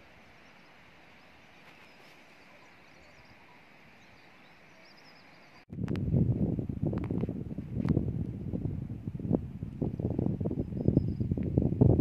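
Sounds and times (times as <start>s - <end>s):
faint outdoor hiss: 0.0s - 12.0s
wind buffeting microphone: 5.7s - 12.0s.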